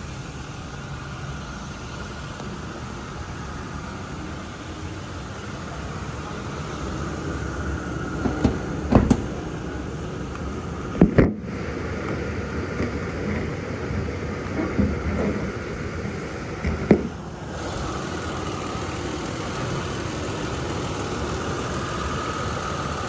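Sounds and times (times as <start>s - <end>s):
engine idling: 0.0s - 23.0s
knocks and clunks: 8.2s - 9.4s.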